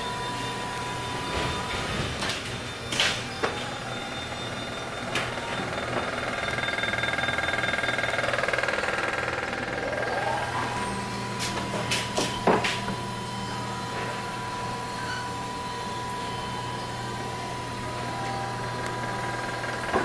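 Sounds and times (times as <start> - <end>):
steady mechanical hum: 0.0 - 20.0
engine-like machine noise: 1.3 - 20.0.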